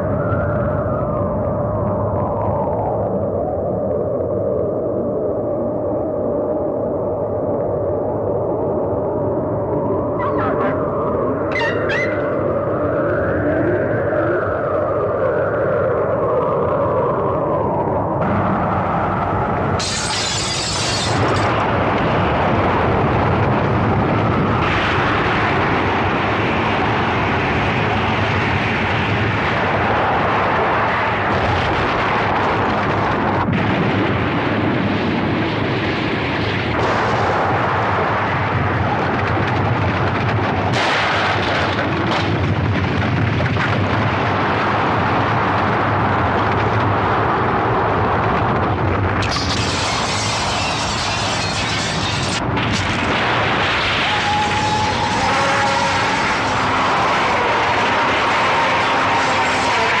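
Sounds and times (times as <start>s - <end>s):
explosion rumble: 8.8s - 14.9s, 16.1s - 60.0s.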